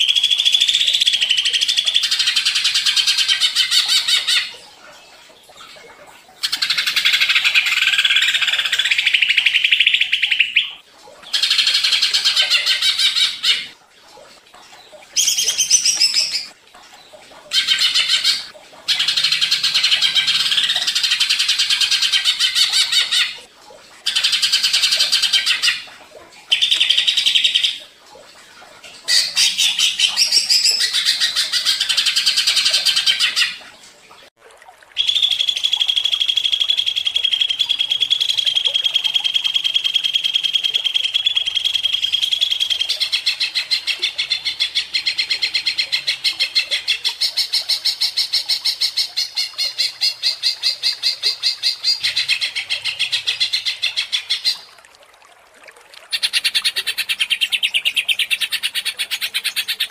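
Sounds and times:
bird singing and trilling: 0:00.0 - 0:04.6, 0:06.4 - 0:13.8, 0:15.2 - 0:16.6, 0:29.1 - 0:33.6, 0:35.0 - 0:47.3, 0:56.1 - 0:59.9.

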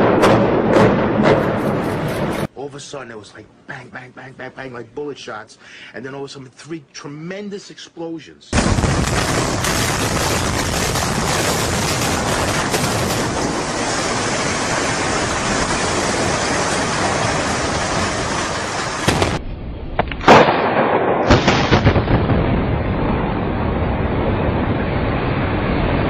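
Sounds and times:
demolition charge blasts: 0:00.0 - 0:02.5, 0:08.5 - 0:26.0
rumble: 0:08.6 - 0:26.0.

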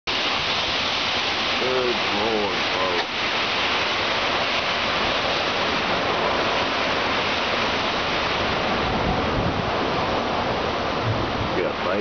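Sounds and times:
strong wind through trees: 0:00.1 - 0:12.0
low rumble: 0:07.8 - 0:12.0.

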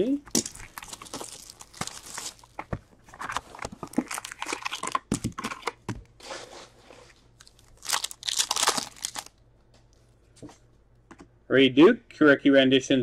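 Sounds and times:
shrink wrap crinkling and tearing: 0:00.3 - 0:05.8, 0:07.4 - 0:09.4
card packs rustling: 0:00.3 - 0:06.4, 0:07.3 - 0:09.3.

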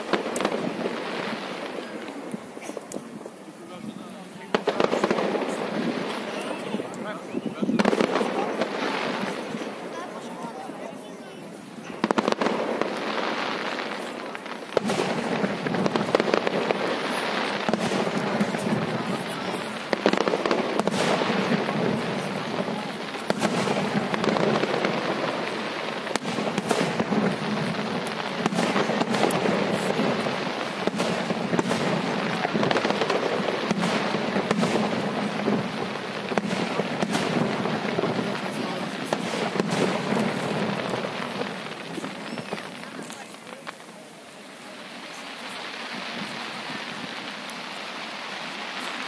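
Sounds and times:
fireworks crackling and banging: 0:00.0 - 0:49.0.

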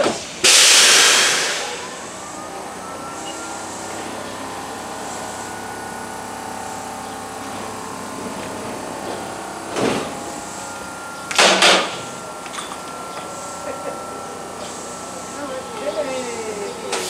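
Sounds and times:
compressed air hisses from train: 0:00.0 - 0:01.8
steady hum: 0:00.9 - 0:16.9.

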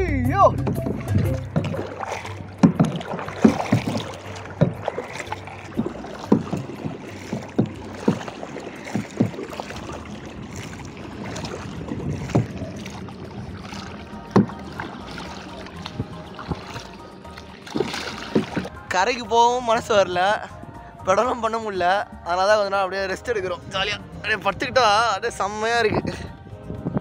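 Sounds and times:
water lapping against hull: 0:00.4 - 0:27.0
paddle splashing in water: 0:00.6 - 0:18.9.

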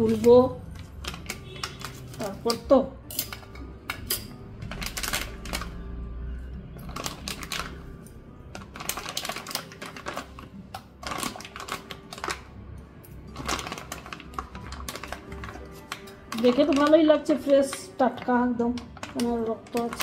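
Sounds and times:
plastic pouch crinkling: 0:00.0 - 0:02.6, 0:04.6 - 0:05.9, 0:06.8 - 0:07.9, 0:08.5 - 0:12.5, 0:13.2 - 0:20.0
faint music: 0:00.0 - 0:20.0.

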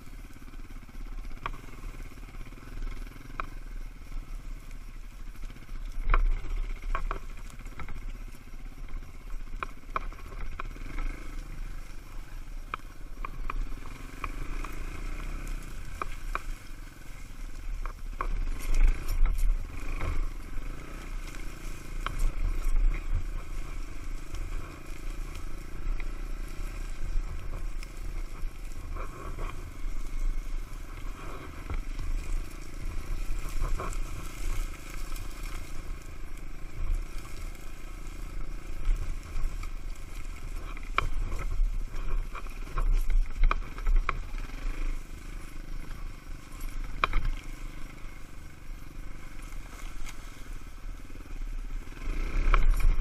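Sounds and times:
dirt bike engine running: 0:00.0 - 0:53.0
wind rumble on microphone: 0:00.0 - 0:53.0
clicks scrapes and crackles: 0:06.0 - 0:08.1, 0:17.8 - 0:20.3, 0:21.0 - 0:45.0, 0:46.5 - 0:47.5.

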